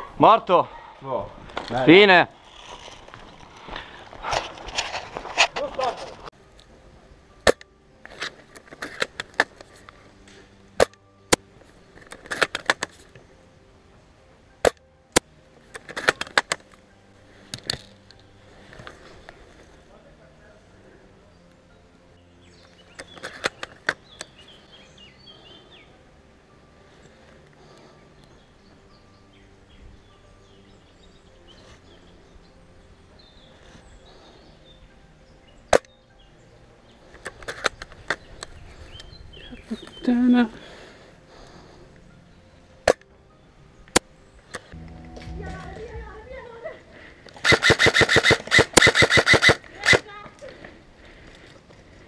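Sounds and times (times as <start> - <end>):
faint birds chirping: 18.1 - 47.4
airsoft guns firing: 47.4 - 50.0.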